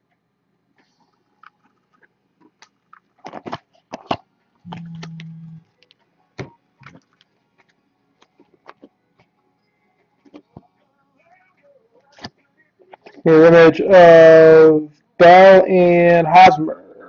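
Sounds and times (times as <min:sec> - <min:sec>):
low hum: 0:04.6 - 0:05.8.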